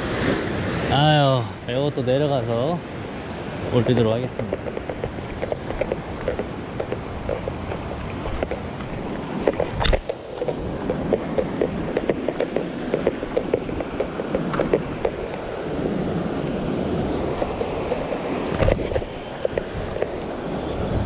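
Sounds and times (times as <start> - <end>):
surf washing over rock: 0.0 - 21.0
wind buffeting microphone: 0.0 - 21.0
footsteps on rock: 4.4 - 15.5.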